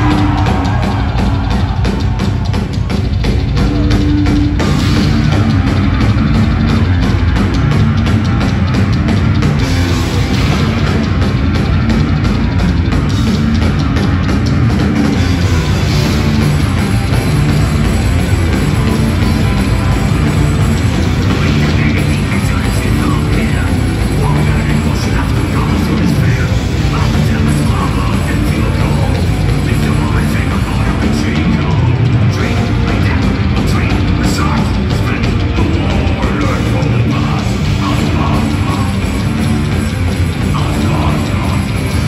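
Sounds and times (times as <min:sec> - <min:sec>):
metal band playing live: 0:00.0 - 0:42.0.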